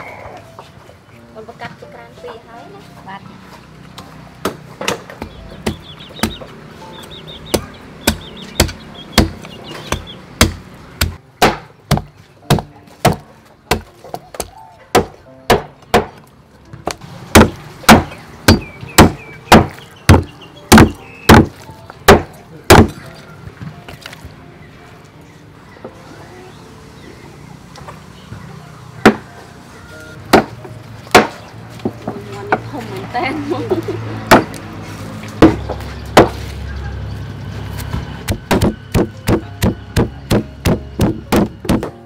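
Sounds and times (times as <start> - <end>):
cleaver chopping on wooden block: 7.5 - 16.2, 16.9 - 21.5, 22.1 - 23.0, 31.1 - 31.4, 38.3 - 42.0.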